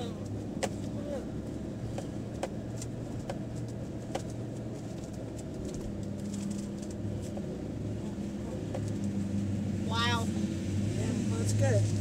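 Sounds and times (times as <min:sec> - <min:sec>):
engine and tyre drone: 0:00.0 - 0:12.0.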